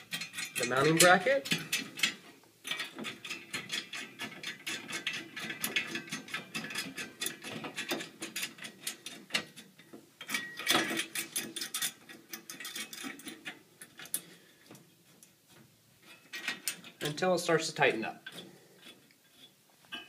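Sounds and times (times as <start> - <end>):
metallic clatter: 0.0 - 14.3
metal nuts clicking and rattling: 0.0 - 15.4, 16.0 - 17.2.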